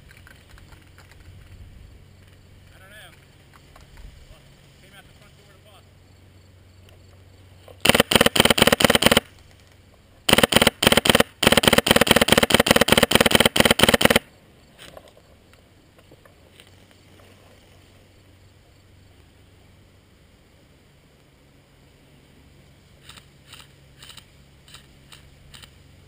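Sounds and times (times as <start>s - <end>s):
airsoft rifle firing bursts: 7.8s - 9.3s, 10.3s - 14.3s.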